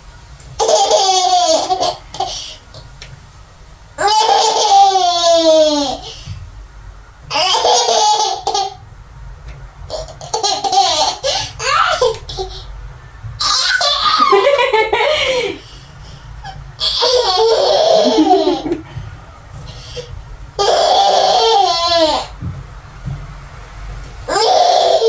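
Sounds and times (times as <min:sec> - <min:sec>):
baby laughing: 0:00.6 - 0:02.6, 0:04.0 - 0:06.0, 0:07.3 - 0:08.8, 0:09.9 - 0:12.7, 0:13.4 - 0:15.7, 0:16.4 - 0:18.9, 0:19.9 - 0:22.3, 0:24.3 - 0:25.0.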